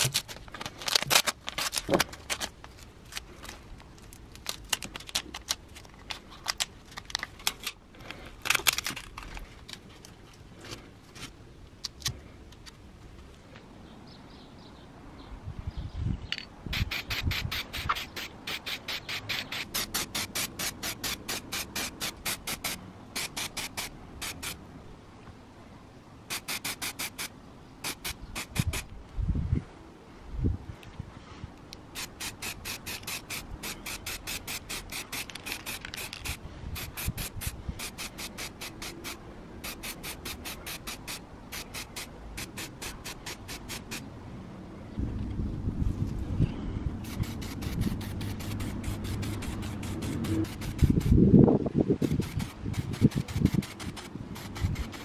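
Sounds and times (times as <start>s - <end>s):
spray can rattling: 0.0s - 2.6s, 16.7s - 24.6s, 26.3s - 28.9s, 31.9s - 44.0s, 47.0s - 51.2s, 52.0s - 55.0s
tape and paper tearing: 0.0s - 3.3s, 4.0s - 7.8s.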